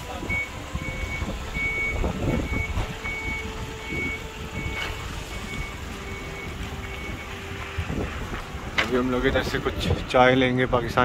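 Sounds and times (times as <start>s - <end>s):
vehicle reversing alarm beeping: 0.0s - 8.0s
engines idling: 0.0s - 11.0s.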